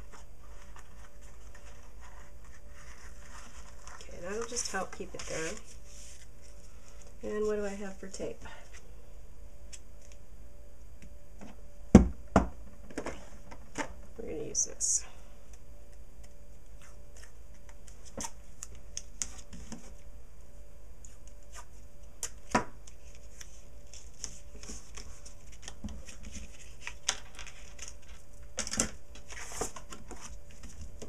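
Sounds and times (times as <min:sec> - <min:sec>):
tape and cardstock rustling: 0:00.0 - 0:08.2, 0:21.0 - 0:31.0
faint low hum: 0:00.0 - 0:31.0.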